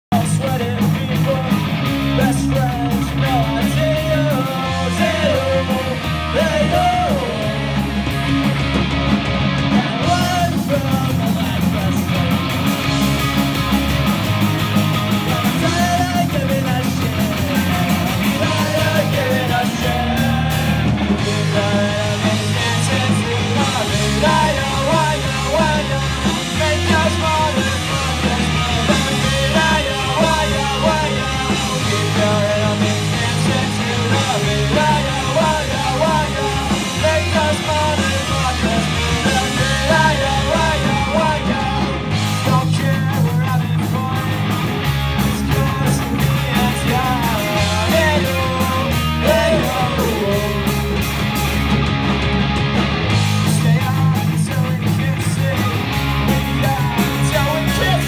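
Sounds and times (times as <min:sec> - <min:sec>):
distorted electric guitars: 0:00.0 - 0:58.0
drum kit: 0:00.0 - 0:58.0
electric bass: 0:00.0 - 0:58.0
lead singer singing: 0:00.1 - 0:08.2, 0:09.6 - 0:12.3, 0:15.3 - 0:44.6, 0:45.2 - 0:51.2, 0:53.4 - 0:58.0.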